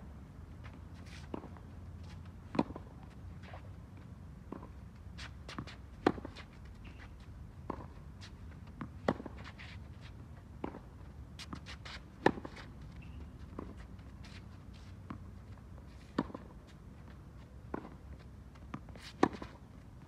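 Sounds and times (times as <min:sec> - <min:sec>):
shoe scuffs on hard court: 0:00.6 - 0:03.7, 0:04.5 - 0:19.7
tennis racket hitting ball: 0:05.5 - 0:06.5, 0:08.8 - 0:09.7, 0:18.7 - 0:19.6.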